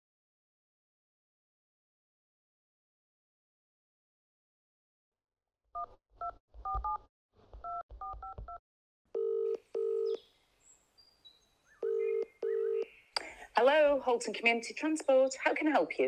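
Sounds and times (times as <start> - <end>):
telephone ringing tone: 9.2 - 10.2, 11.8 - 12.9.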